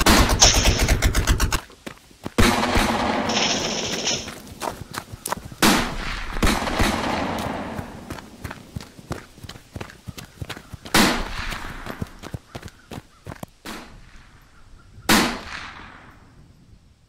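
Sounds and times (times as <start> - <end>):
machine-gun fire: 0.0 - 1.6, 2.4 - 4.3, 5.6 - 8.1
scattered gunshots: 0.0 - 1.6, 2.4 - 4.4, 5.6 - 8.1, 10.9 - 11.8.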